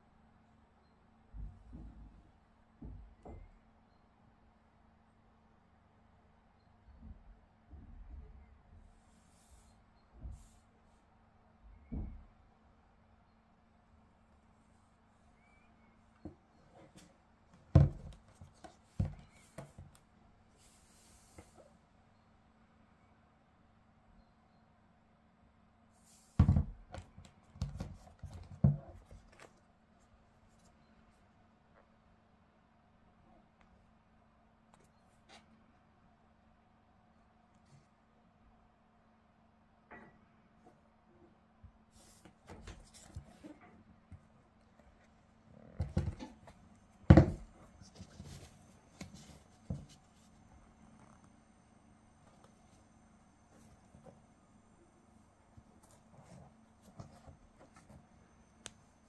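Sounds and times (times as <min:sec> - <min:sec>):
faint steady hum: 0:00.0 - 0:59.0
hands handling a shoe: 0:15.4 - 0:21.7, 0:26.4 - 0:29.6, 0:45.8 - 0:50.5
shoe thumping on table: 0:17.7 - 0:18.2, 0:19.0 - 0:19.9, 0:26.4 - 0:27.1, 0:47.1 - 0:47.5.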